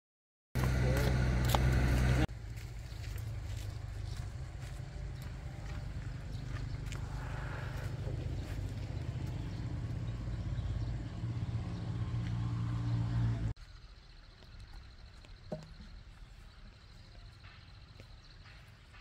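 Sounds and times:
engine humming: 0:00.6 - 0:13.6
quiet outdoor background: 0:00.6 - 0:19.0.

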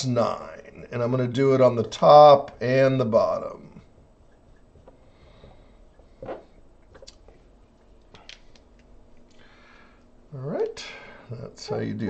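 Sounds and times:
soft breath: 0:04.9 - 0:06.2, 0:09.3 - 0:10.2.

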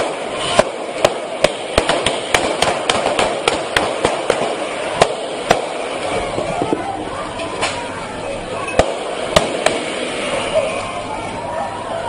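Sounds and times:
sharp gunshots: 0:00.0 - 0:06.1, 0:08.8 - 0:10.4
steady background noise: 0:00.0 - 0:12.0.

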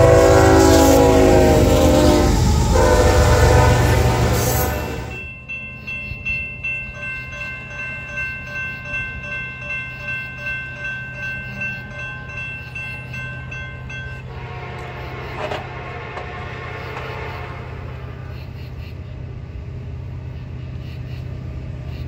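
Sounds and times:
crossing bell ringing: 0:00.0 - 0:19.2
low hum: 0:11.9 - 0:22.0.

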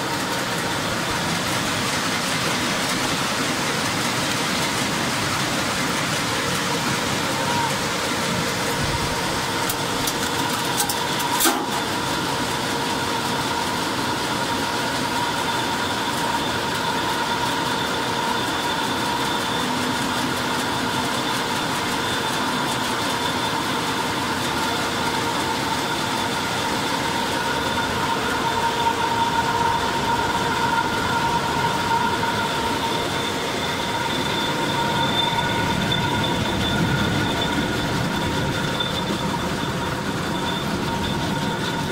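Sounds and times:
processing machinery with high whine: 0:00.0 - 0:41.9.

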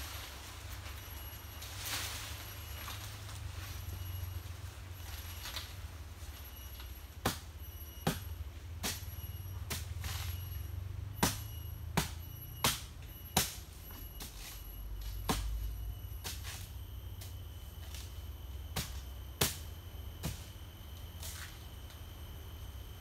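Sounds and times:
blade chopping palm stalks: 0:06.7 - 0:10.4, 0:11.2 - 0:21.6.

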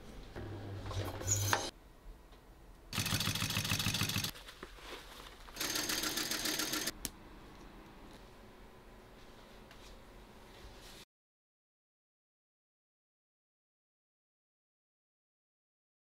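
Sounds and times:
sewing machine stitching leather: 0:03.0 - 0:04.3, 0:05.6 - 0:06.9.

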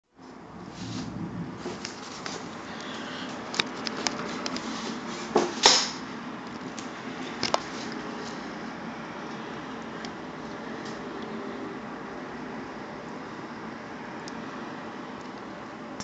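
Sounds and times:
rain hissing: 0:00.6 - 0:03.3.

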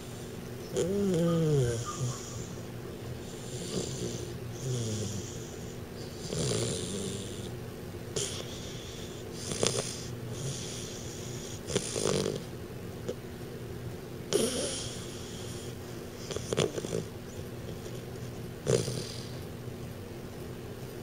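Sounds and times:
puppy snoring: 0:00.0 - 0:12.5, 0:14.3 - 0:19.5
wheezy breaths: 0:01.6 - 0:07.5, 0:08.2 - 0:12.4, 0:14.4 - 0:17.1, 0:18.7 - 0:19.5.

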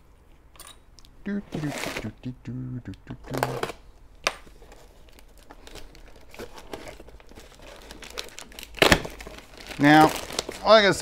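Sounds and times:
plastic wrapping crinkling and tearing: 0:04.5 - 0:11.0.

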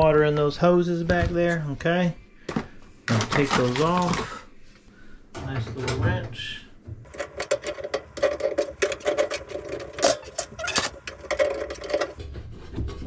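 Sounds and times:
wrench clicking and scraping metal: 0:07.1 - 0:12.2.

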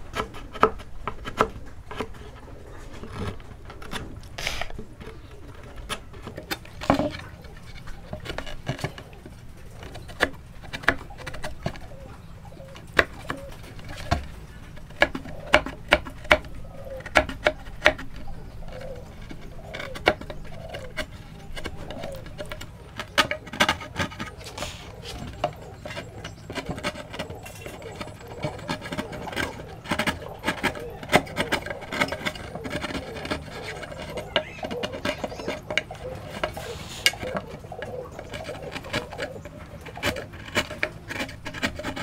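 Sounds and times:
dove cooing: 0:00.0 - 0:42.0
chisel chopping wood: 0:12.8 - 0:42.0.

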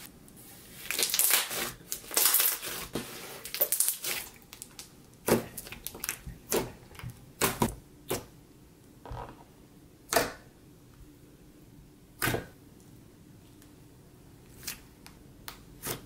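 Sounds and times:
slime crackling: 0:00.8 - 0:07.7.

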